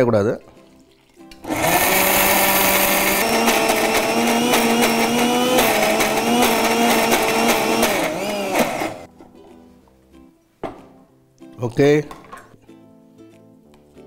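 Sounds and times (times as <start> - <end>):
mixer grinder motor whine: 1.4 - 9.1.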